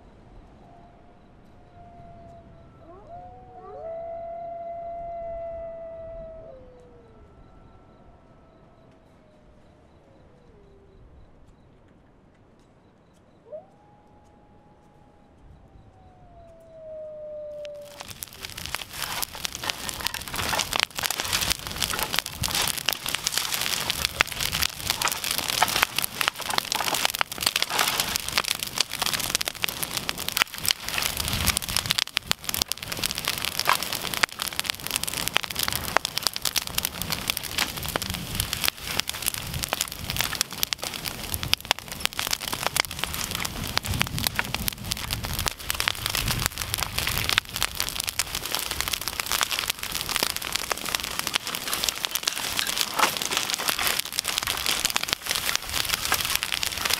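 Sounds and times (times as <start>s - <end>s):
bonfire crackling and popping: 13.8s - 56.9s
low rush of flame: 17.6s - 56.9s.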